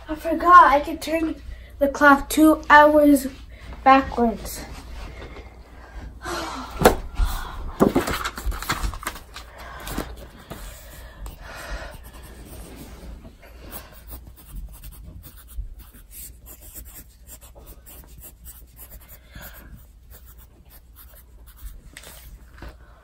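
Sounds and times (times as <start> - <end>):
pencil scratching on paper: 10.4 - 22.3.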